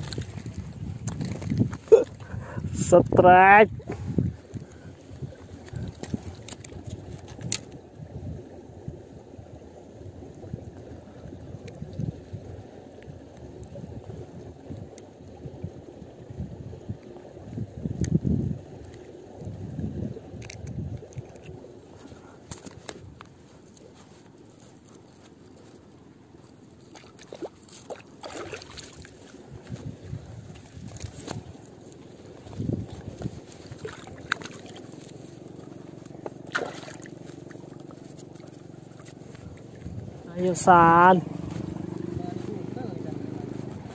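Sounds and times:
fish thrashing in water: 0.0s - 2.6s, 26.3s - 40.2s
wind buffeting microphone: 0.0s - 23.5s, 28.3s - 34.8s, 39.2s - 43.9s.

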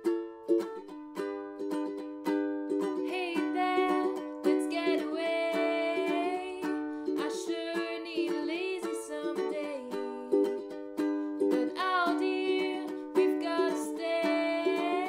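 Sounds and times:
ukulele strumming chords: 0.0s - 15.0s
woman singing: 3.0s - 10.7s, 11.5s - 15.0s.

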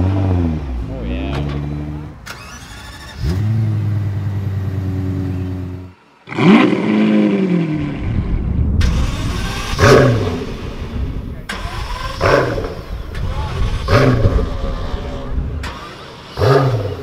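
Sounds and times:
car engine starting and idling: 0.0s - 17.0s
car engine starting with rev: 0.0s - 17.0s.

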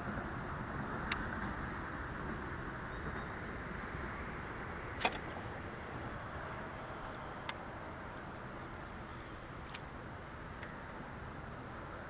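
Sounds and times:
open-air rushing noise: 0.0s - 12.0s
sharp click: 5.0s - 5.4s.

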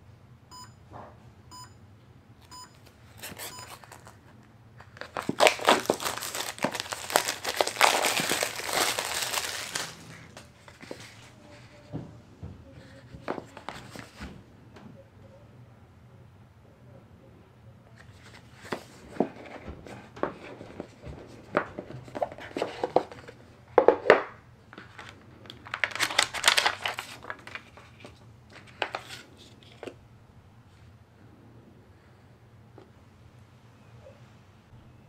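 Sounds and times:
faint low room hum: 0.0s - 35.0s
packaging crinkling and rustling: 2.8s - 11.6s, 13.2s - 14.2s, 18.1s - 23.4s, 24.0s - 30.0s
packaging tearing: 3.2s - 4.2s, 4.8s - 11.0s, 24.9s - 29.9s.

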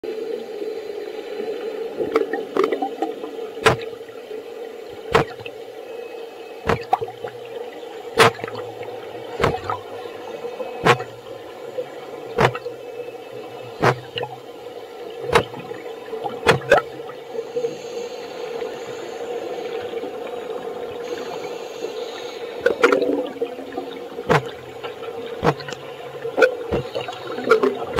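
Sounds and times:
steady hum: 0.1s - 27.9s
underwater bubble pops: 2.0s - 4.0s, 5.0s - 5.5s, 6.7s - 7.5s, 8.2s - 9.9s, 10.8s - 11.3s, 12.3s - 12.8s, 13.7s - 14.4s, 15.2s - 17.1s, 22.6s - 27.9s.

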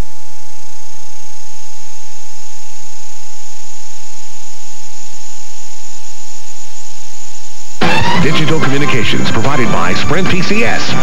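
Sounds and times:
low hum: 0.0s - 8.0s
constant mid-pitched tone: 0.0s - 11.0s.

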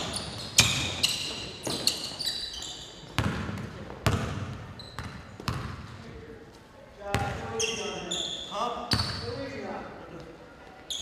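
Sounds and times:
sneaker squeaks: 0.0s - 6.0s, 7.1s - 9.4s
basketball bouncing on hardwood: 3.2s - 5.8s.

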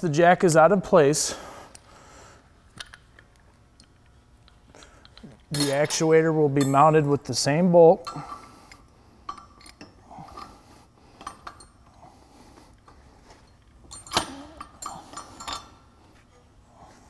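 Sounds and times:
metal clinking and knocking: 13.6s - 15.8s.

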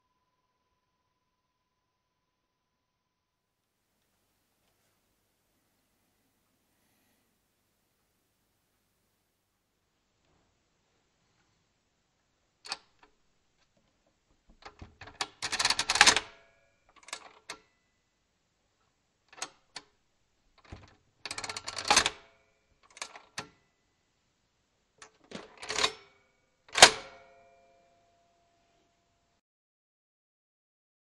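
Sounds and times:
mechanical calculator clicking: 14.6s - 16.3s, 20.6s - 22.2s.

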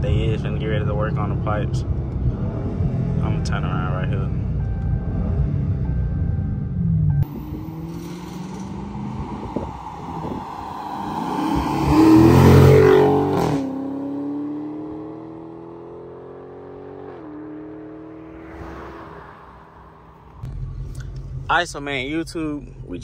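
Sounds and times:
car engine accelerating past: 6.8s - 20.6s.

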